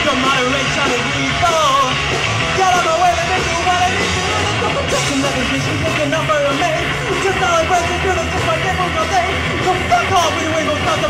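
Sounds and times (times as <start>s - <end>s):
punk rock band playing: 0.0s - 11.0s
vocalist singing and shouting: 0.0s - 11.0s.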